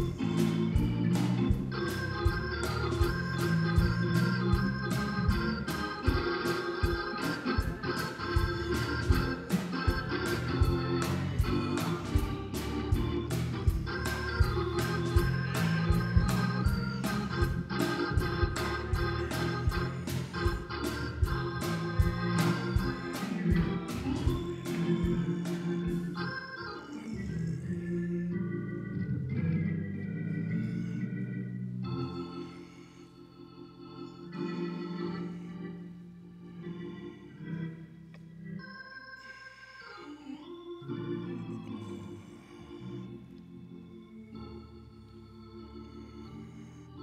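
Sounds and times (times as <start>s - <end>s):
steady percussive beat: 0.0s - 26.2s
organ playing held chords: 0.0s - 47.0s.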